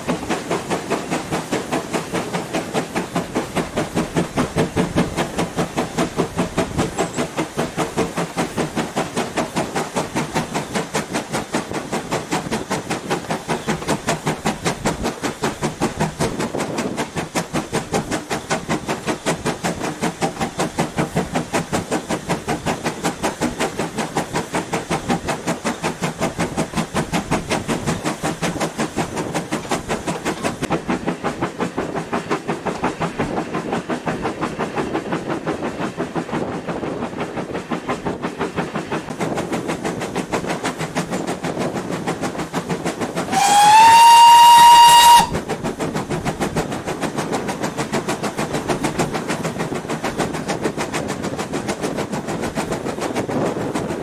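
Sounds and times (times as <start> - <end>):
steam locomotive exhaust beating: 0.0 - 54.0
steam whistle: 43.3 - 45.4.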